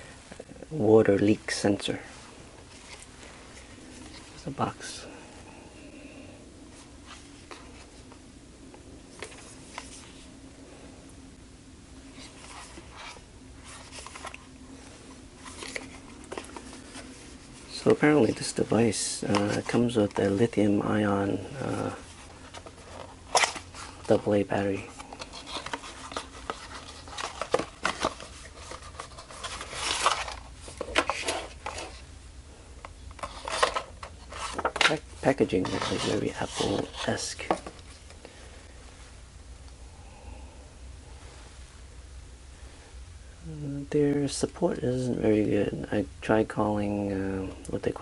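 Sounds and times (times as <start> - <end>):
faint low hum: 0.0 - 48.0
cardboard rustling and scraping: 9.1 - 10.3, 12.1 - 32.1, 33.1 - 38.2.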